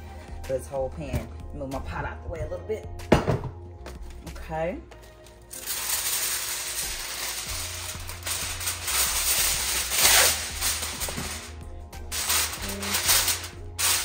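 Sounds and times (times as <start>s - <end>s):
aluminium foil crinkling: 5.0s - 14.0s.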